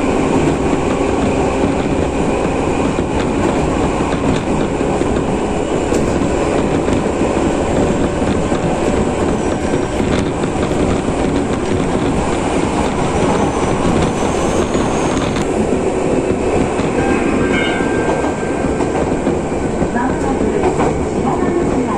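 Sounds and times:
train wheels on rails: 0.0 - 21.9.

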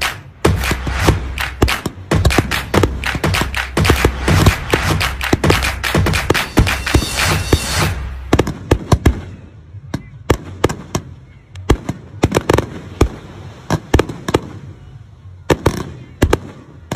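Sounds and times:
fireworks bangs: 0.0 - 14.8.

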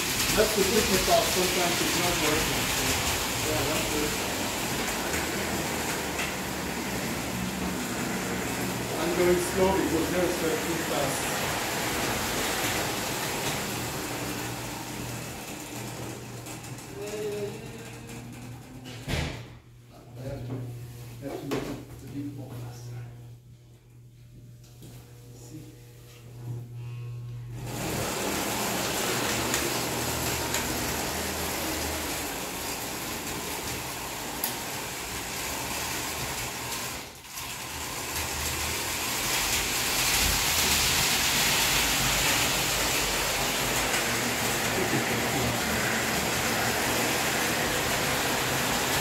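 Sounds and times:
toy trains running on metal track: 0.0 - 6.5, 8.9 - 15.8, 16.6 - 18.5, 28.2 - 49.0.

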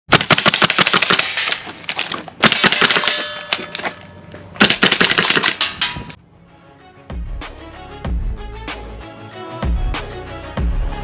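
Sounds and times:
airsoft rifle clacking shots: 0.1 - 4.0, 4.6 - 6.2.

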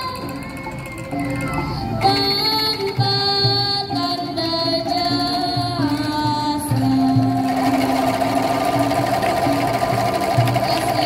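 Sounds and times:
sustained melody tones: 0.0 - 11.0
bamboo angklungs rattling: 6.9 - 11.0.

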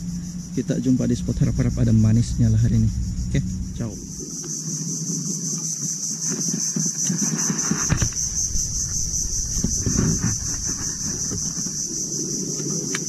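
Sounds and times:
low knocks and rumbling: 0.0 - 4.5, 7.8 - 12.4
insect chorus buzzing: 0.0 - 13.0.

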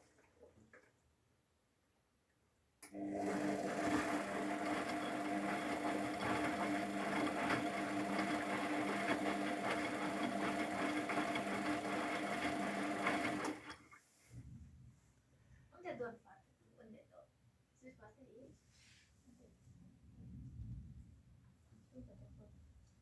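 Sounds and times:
washing machine drum motor humming: 2.9 - 13.8.

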